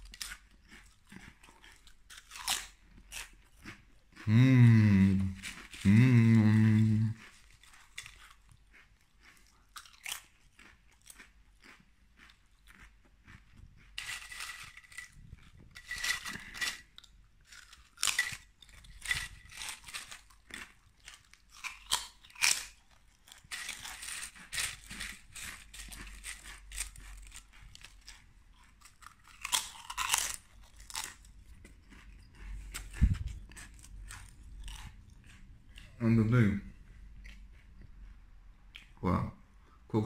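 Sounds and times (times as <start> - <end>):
crunching potato chips: 0.0 - 36.0.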